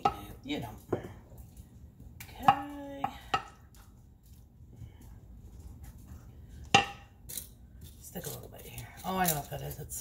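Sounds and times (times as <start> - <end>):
wooden spoon knocking on pans: 0.0 - 1.2, 2.2 - 3.9, 6.6 - 7.2.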